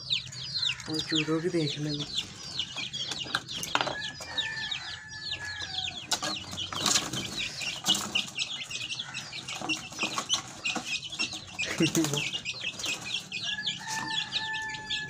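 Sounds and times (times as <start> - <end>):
chicks peeping: 0.0 - 15.0
wing flapping and scrabbling: 6.1 - 8.8, 9.4 - 14.1.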